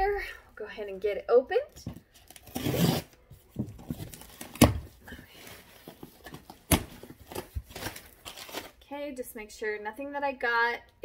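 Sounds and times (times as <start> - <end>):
scissors slitting packing tape: 2.2 - 3.2.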